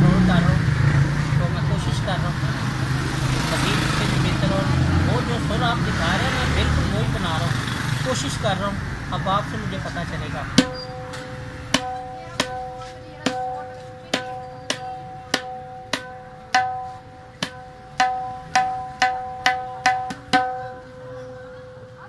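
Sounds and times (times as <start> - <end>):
tabla drum ringing strokes: 10.6 - 21.8.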